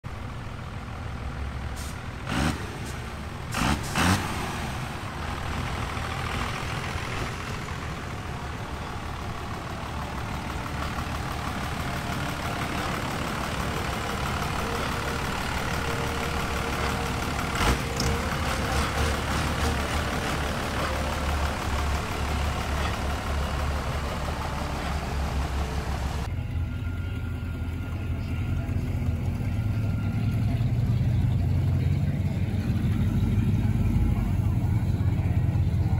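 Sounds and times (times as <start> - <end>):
turbocharged car engine rumble: 0.0 - 35.9.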